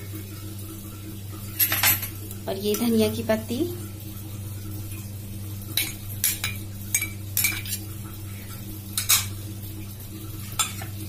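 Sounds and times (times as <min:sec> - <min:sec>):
steady low hum: 0:00.0 - 0:11.0
spoon clinking against steel bowls: 0:05.8 - 0:07.9, 0:09.0 - 0:09.3, 0:10.6 - 0:10.9.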